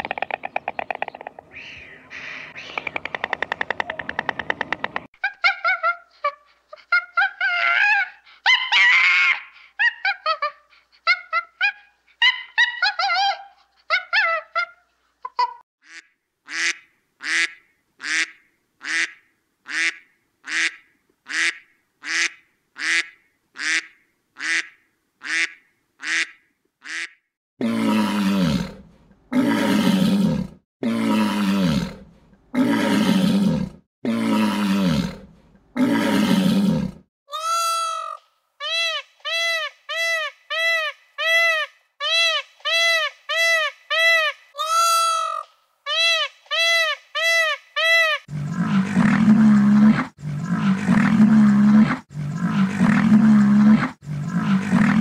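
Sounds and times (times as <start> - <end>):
rising and falling animal calls: 0.0 - 6.0.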